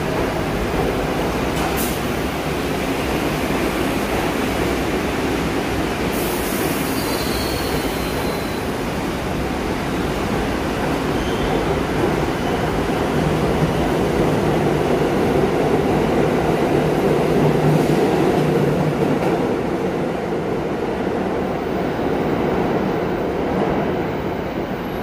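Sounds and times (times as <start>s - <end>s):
subway train rumbling: 0.0s - 25.0s
high wheel squeal: 6.8s - 8.7s.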